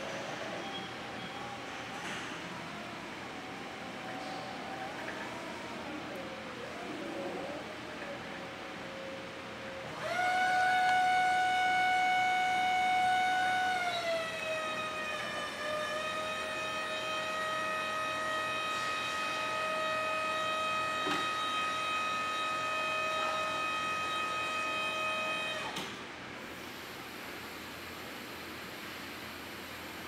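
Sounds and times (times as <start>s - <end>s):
hydraulic pump motor whining: 2.2s - 26.0s.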